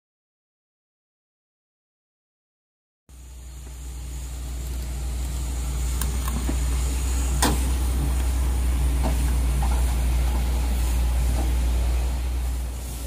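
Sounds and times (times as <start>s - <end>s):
diesel engine idling: 3.1s - 13.0s.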